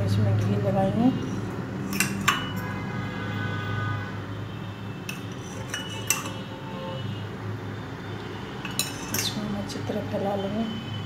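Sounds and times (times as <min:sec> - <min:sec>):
metal spoon clinking on utensils: 0:01.2 - 0:02.8, 0:05.0 - 0:06.5, 0:08.6 - 0:09.6.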